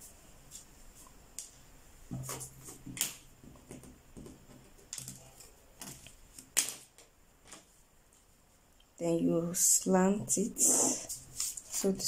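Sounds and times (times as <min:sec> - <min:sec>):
paper rustling: 0:11.1 - 0:12.0.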